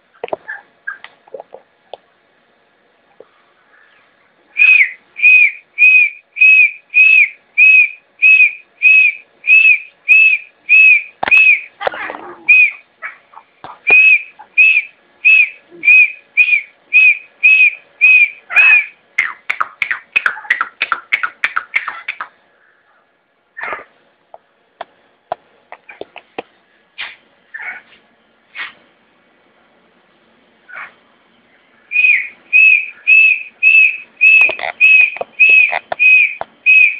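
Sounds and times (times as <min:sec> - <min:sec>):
francolin whistled calls: 0:03.8 - 0:11.8, 0:12.5 - 0:12.9, 0:13.9 - 0:19.4, 0:31.6 - 0:36.9.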